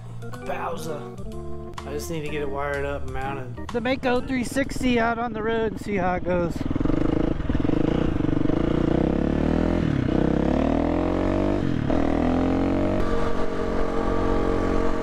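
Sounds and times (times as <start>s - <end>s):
dirt bike engine accelerating: 5.7s - 15.0s.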